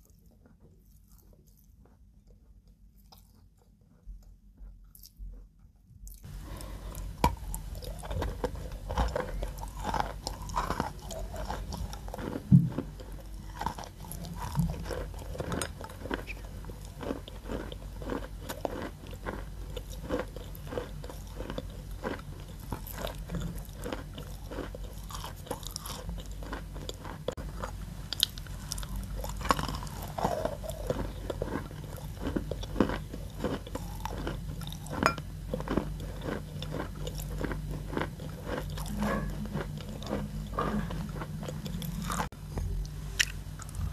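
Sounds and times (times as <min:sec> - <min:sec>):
chewing chalk crunches: 0:06.1 - 0:42.3.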